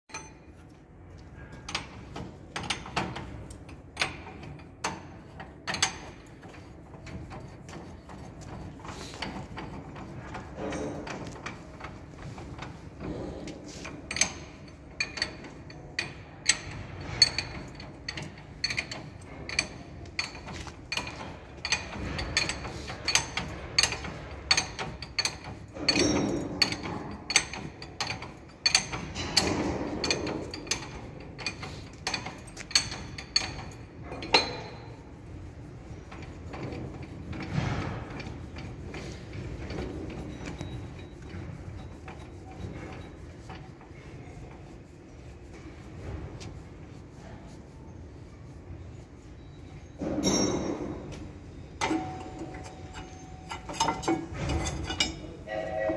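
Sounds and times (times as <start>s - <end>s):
metal scraping: 4.1s - 47.5s, 48.3s - 55.9s
hand tools clinking on steel: 51.8s - 55.4s.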